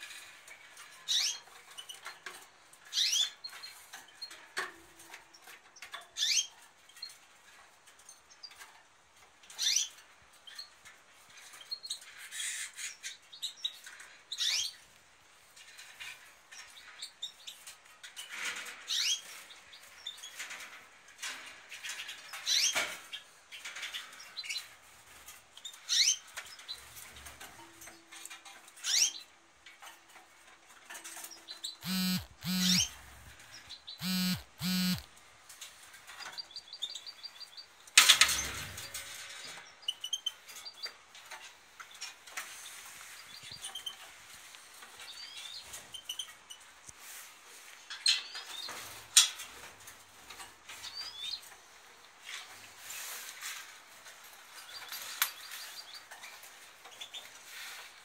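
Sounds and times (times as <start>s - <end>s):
caged birds chirping: 0.0s - 58.0s
buzzy bird calls: 31.6s - 35.1s.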